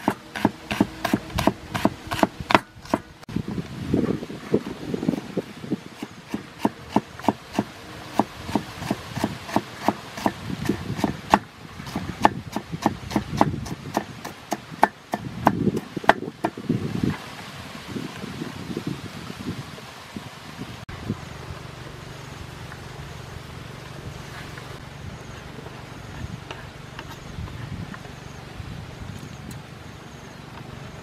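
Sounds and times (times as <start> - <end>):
knife chopping on cutting board: 0.0 - 3.1.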